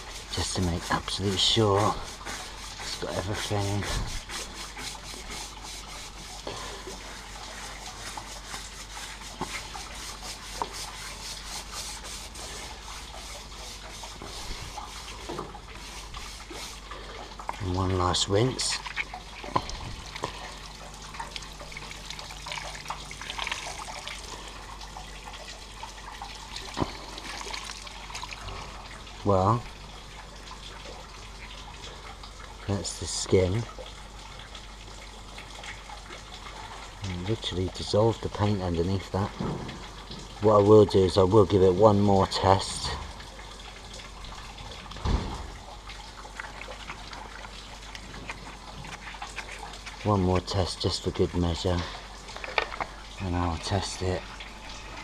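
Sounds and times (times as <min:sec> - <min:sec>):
hose water spraying on metal: 0:00.0 - 0:25.3
dull thump: 0:45.0 - 0:45.6.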